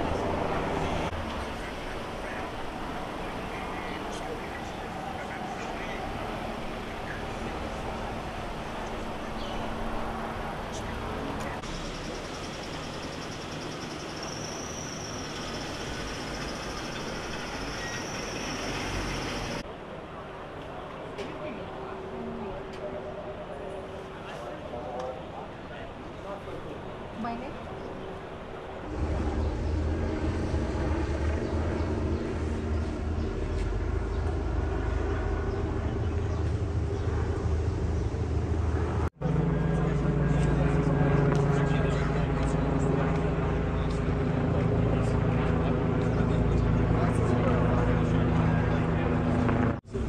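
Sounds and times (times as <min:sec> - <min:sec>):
vehicle rumble: 0:00.0 - 0:19.7, 0:26.9 - 0:50.0
emergency vehicle engines idling: 0:00.0 - 0:20.8.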